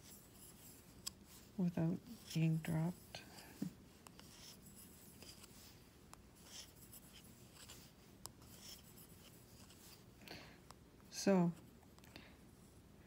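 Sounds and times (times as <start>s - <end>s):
yarn rustling over needles: 0.0s - 10.2s.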